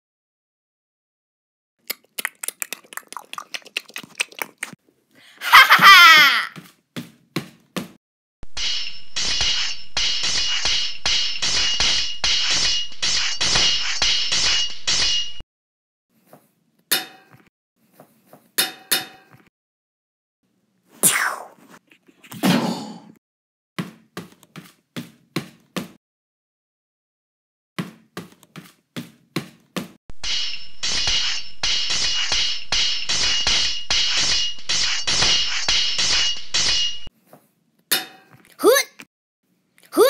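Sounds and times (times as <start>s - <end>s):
sharp metal clangs: 8.4s - 15.4s, 30.2s - 37.1s
metallic clashing and clinking: 8.5s - 15.4s, 30.2s - 37.1s.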